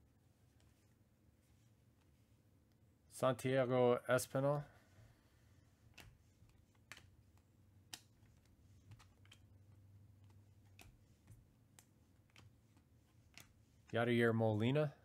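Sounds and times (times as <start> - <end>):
cards clicking together: 5.9 - 9.6, 10.2 - 13.6.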